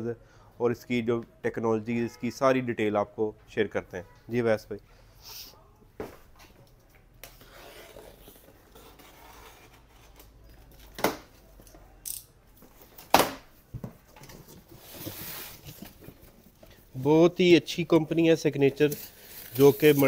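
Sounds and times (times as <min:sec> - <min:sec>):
cardboard rustling: 0:14.1 - 0:16.4.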